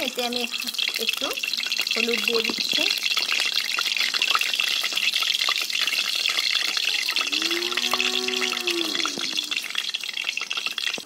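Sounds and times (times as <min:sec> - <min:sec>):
oil sizzling with crackles: 0:00.0 - 0:11.0.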